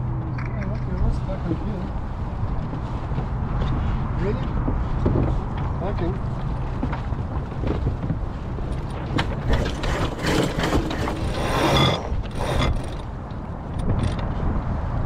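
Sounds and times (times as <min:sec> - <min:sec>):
wind rumble on microphone: 0:00.0 - 0:15.0
winch ratcheting: 0:08.7 - 0:14.2.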